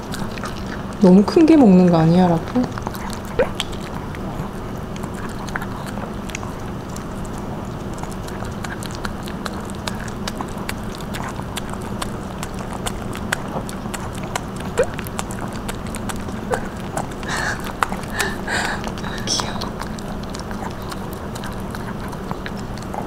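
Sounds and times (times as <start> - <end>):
dogs chewing wetly: 0.0 - 23.0
dog jaw snap: 2.8 - 4.2.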